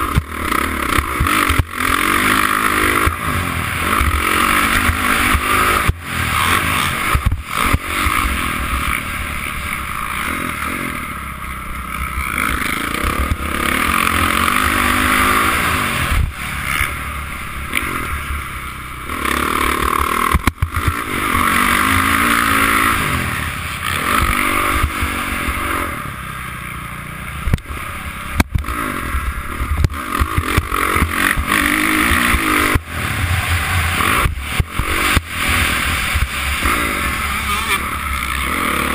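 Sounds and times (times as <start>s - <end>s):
dirt bike engine revving: 0.0s - 38.9s.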